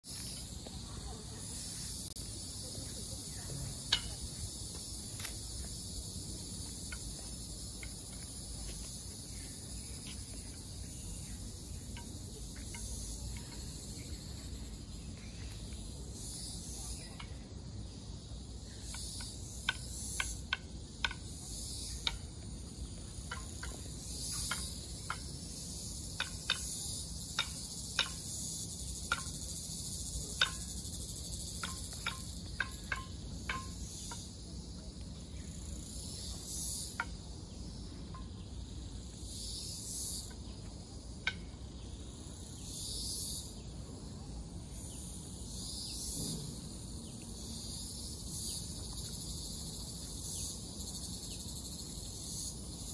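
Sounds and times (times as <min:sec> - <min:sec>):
insects buzzing: 0:00.0 - 0:52.9.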